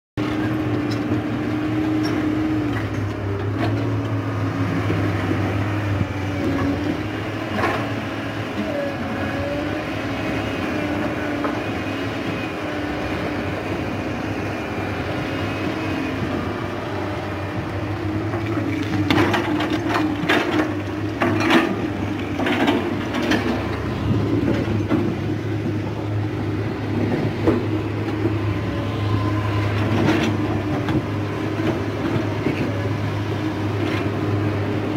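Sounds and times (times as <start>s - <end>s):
excavator diesel engine running: 0.2s - 34.9s.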